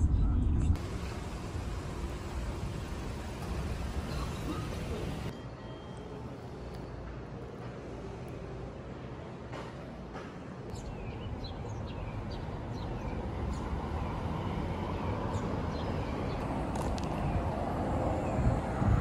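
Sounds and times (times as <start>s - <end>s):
vehicle rumble: 0.0s - 5.3s.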